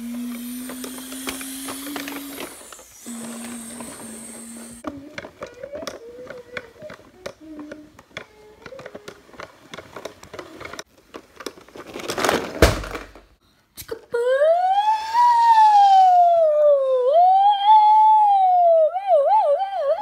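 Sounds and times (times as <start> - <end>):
plastic toys clicking and rustling: 0.0 - 13.3.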